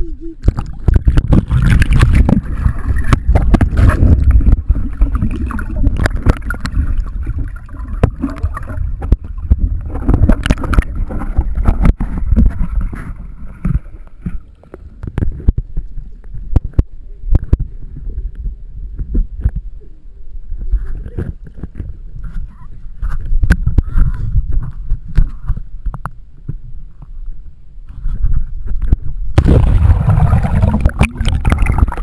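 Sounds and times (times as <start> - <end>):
water sloshing against camera: 0.0 - 32.0
water knocking against case: 0.5 - 4.6.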